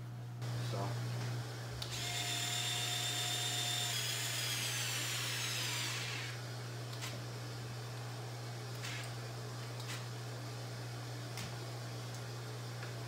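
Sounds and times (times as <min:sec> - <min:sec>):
handheld power tool whining: 0:01.8 - 0:06.4.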